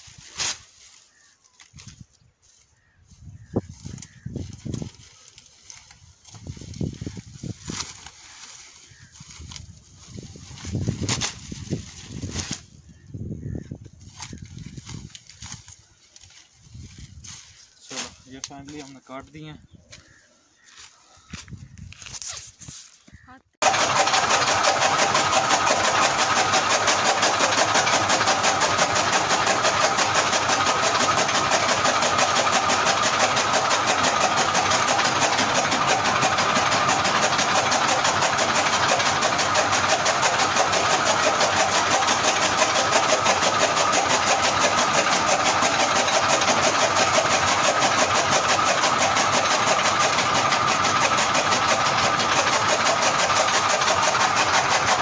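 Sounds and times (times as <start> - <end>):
chaff cutter chopping fodder: 23.6 - 55.0.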